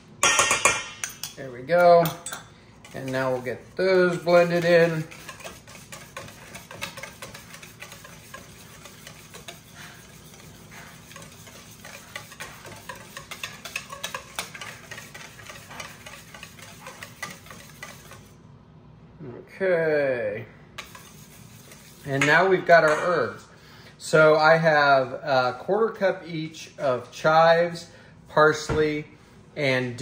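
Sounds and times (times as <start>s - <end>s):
whisk swishing liquid: 2.8s - 18.4s, 20.8s - 22.6s
whisk wires clicking on bowl: 4.0s - 18.3s.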